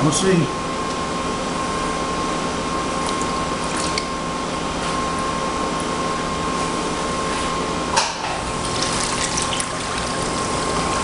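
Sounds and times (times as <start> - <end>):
water sloshing and splashing: 3.0 - 4.2, 8.5 - 11.0.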